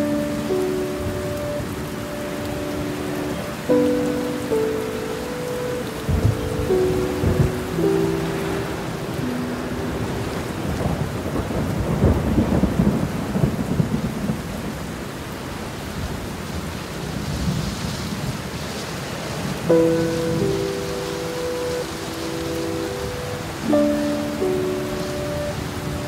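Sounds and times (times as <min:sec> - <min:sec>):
heavy rain: 0:00.0 - 0:26.0
rolling thunder rumble: 0:06.0 - 0:15.2.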